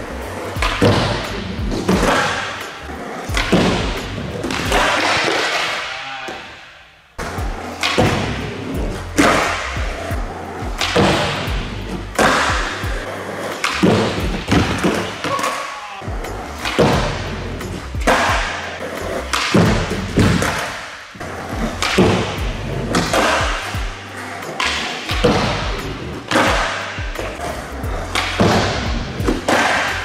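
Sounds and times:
background music with steady beat: 0.0s - 5.8s, 7.2s - 30.0s
skateboards landing on wood: 3.3s - 6.4s, 10.8s - 11.6s, 19.3s - 20.9s, 28.2s - 30.0s.

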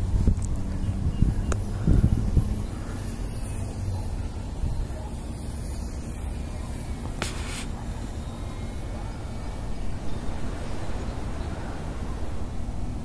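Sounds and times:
wind buffeting microphone: 0.0s - 13.0s.

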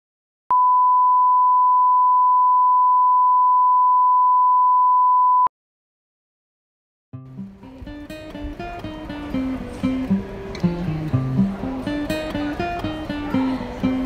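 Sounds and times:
steady test tone beep: 0.5s - 5.5s.

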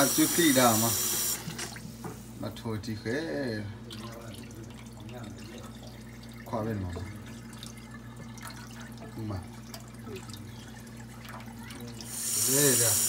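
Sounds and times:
water sloshing and dripping: 3.8s - 12.1s.

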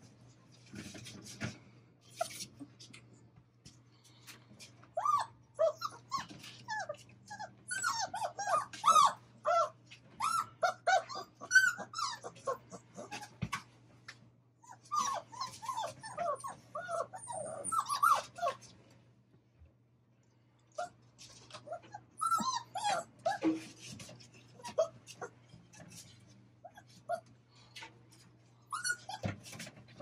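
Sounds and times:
puppies whining and yipping: 4.9s - 13.4s, 14.6s - 18.8s, 20.8s - 26.0s, 26.6s - 27.3s, 28.6s - 30.0s.

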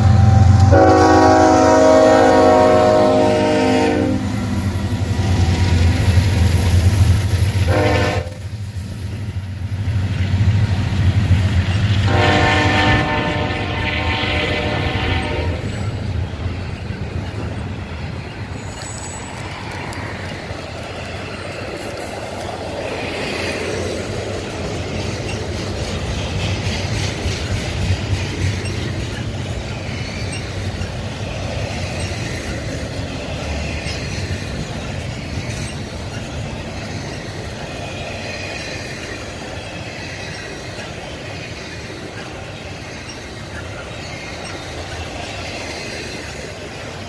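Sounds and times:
train wheels rumbling on track: 0.0s - 47.0s
high wheel squeals: 15.6s - 19.9s, 28.3s - 47.0s.

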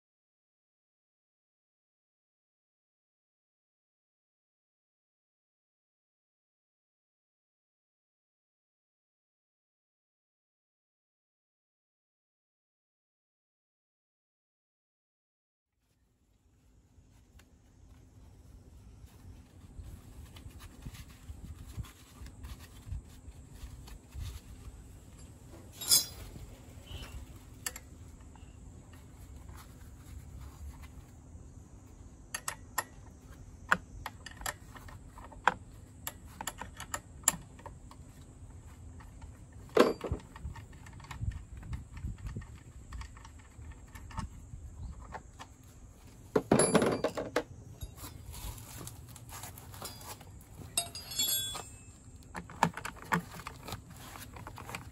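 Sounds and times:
metal clatter: 25.2s - 26.4s, 49.7s - 52.0s.

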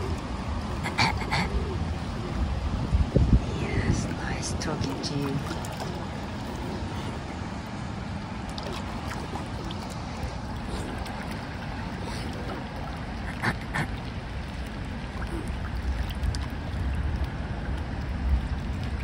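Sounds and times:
wind buffeting microphone: 0.0s - 12.9s
choppy water: 0.0s - 19.0s.

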